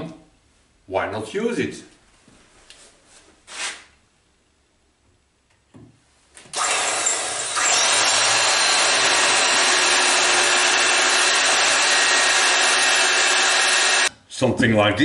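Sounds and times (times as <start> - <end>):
electric drill drilling into metal: 6.5 - 14.1.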